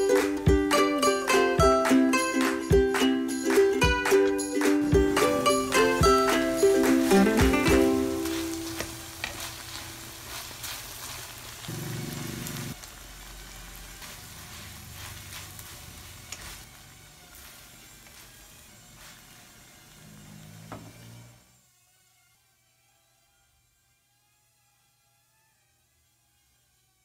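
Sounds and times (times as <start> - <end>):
food sizzling in a wok: 4.4 - 21.2
spatula scraping pan: 5.1 - 11.4.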